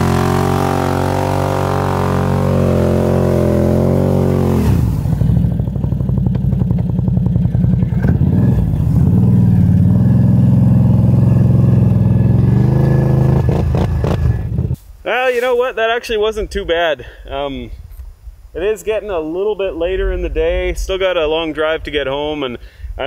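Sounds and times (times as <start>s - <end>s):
atv engine revving: 0.0s - 14.8s.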